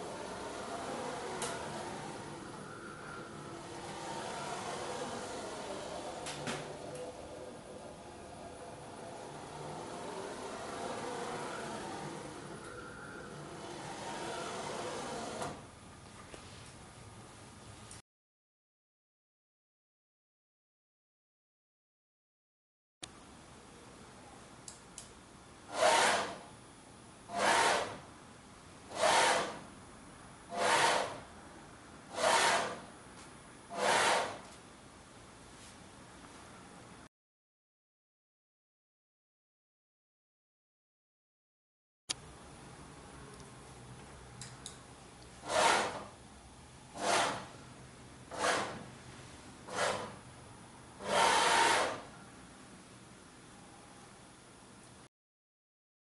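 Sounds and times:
motorized carriage whirring: 0:00.0 - 0:15.7, 0:25.7 - 0:26.5, 0:27.3 - 0:28.1, 0:28.9 - 0:29.7, 0:30.5 - 0:31.3, 0:32.1 - 0:32.9, 0:33.7 - 0:34.5, 0:45.4 - 0:46.2, 0:48.3 - 0:48.9, 0:51.0 - 0:52.1
faint steady hum: 0:00.0 - 0:18.0, 0:23.0 - 0:25.8, 0:42.1 - 0:45.5, 0:52.0 - 0:55.1.

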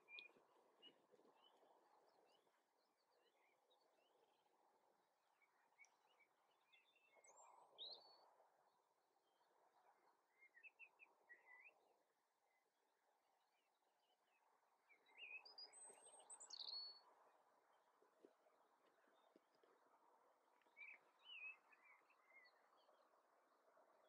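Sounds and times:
faint birds chirping: 0:00.0 - 0:24.0.

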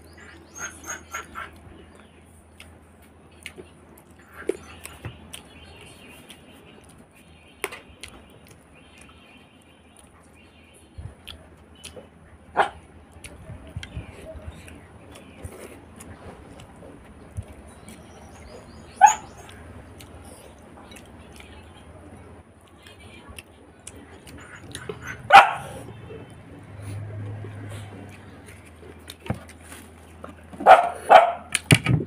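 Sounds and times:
chewing: 0:00.2 - 0:07.3, 0:08.0 - 0:09.2, 0:11.2 - 0:31.7
dog barking: 0:12.6 - 0:12.8, 0:19.0 - 0:19.5, 0:24.8 - 0:26.3, 0:30.6 - 0:31.5.

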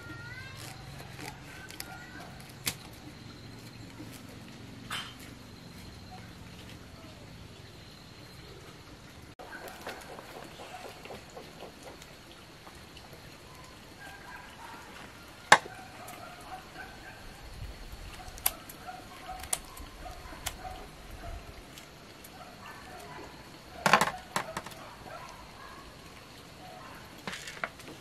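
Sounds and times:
leaves crackling: 0:00.0 - 0:07.7
faint bird calls: 0:04.9 - 0:12.5.

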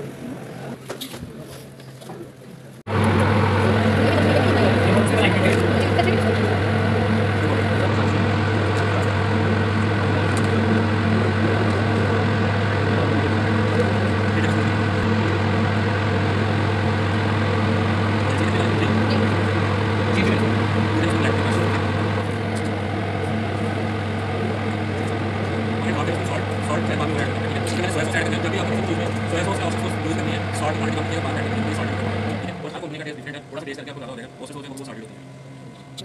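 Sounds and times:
kitchen equipment hum: 0:02.9 - 0:36.0.

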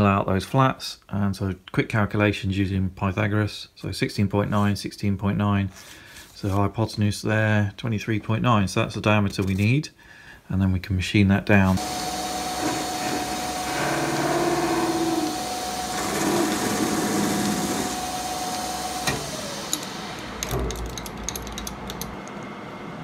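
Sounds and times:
metal lathe whining: 0:11.8 - 0:22.4.

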